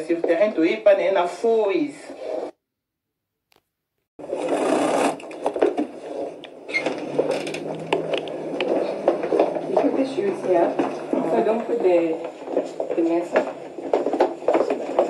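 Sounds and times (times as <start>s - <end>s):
low steady hum: 6.0s - 12.3s.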